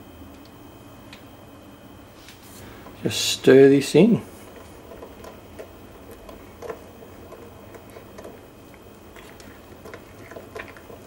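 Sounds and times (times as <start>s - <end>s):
spoon stirring batter in mug: 4.5s - 11.0s.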